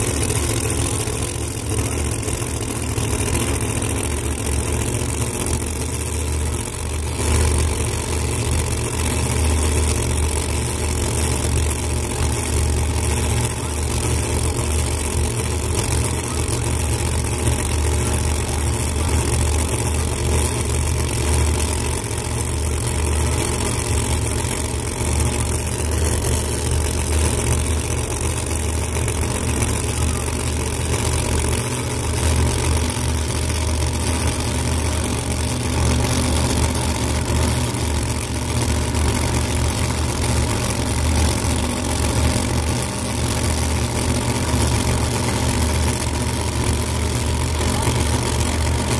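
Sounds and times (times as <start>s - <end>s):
drag cars idling: 0.0s - 48.9s.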